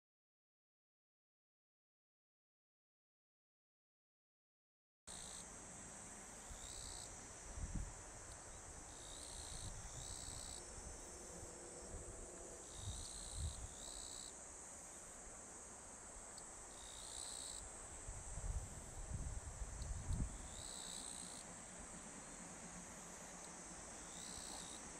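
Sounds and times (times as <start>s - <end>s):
insects chorus: 5.1s - 24.9s
short insect calls: 5.1s - 24.9s.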